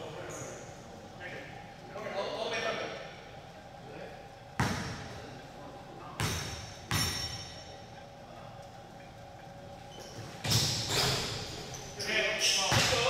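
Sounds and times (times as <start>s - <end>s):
basketball bouncing on gym floor: 4.6s - 5.2s, 6.2s - 7.6s, 10.2s - 11.4s, 12.7s - 13.0s.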